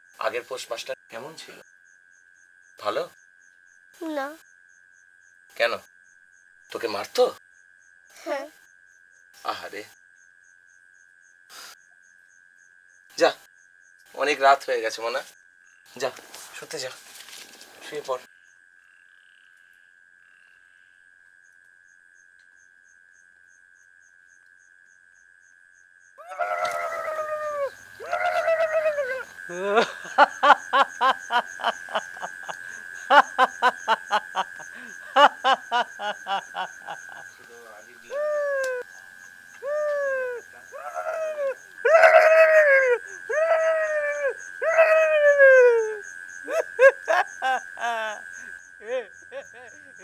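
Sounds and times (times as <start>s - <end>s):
crickets chirring: 0.0s - 50.0s
insect ticking: 0.0s - 50.0s
man screaming high-pitched: 26.2s - 30.0s, 38.1s - 38.9s, 39.6s - 46.9s
man yelping: 26.2s - 30.6s, 38.1s - 38.8s, 39.6s - 46.9s
man wailing: 26.2s - 32.3s, 35.1s - 36.7s, 38.1s - 38.8s, 39.6s - 48.2s, 48.8s - 50.0s.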